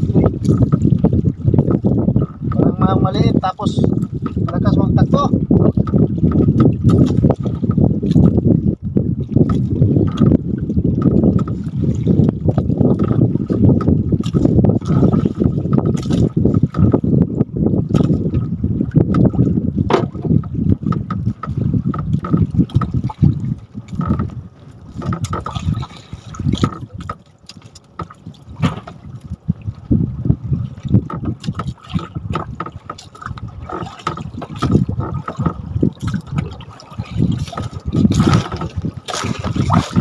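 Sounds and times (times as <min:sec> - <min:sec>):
low rumbling: 0:00.0 - 0:27.1
water sloshing against boat hull: 0:00.0 - 0:40.0
knocks: 0:19.9 - 0:20.3.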